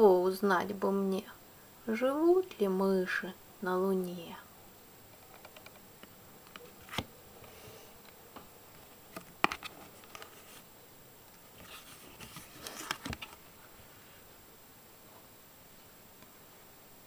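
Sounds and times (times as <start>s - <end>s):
page taps and rustles: 8.8s - 10.6s, 11.6s - 13.4s.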